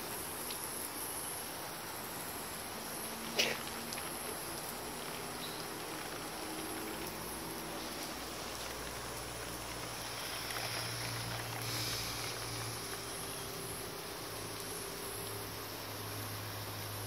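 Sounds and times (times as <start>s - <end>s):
water spraying over plants: 0.0s - 17.0s.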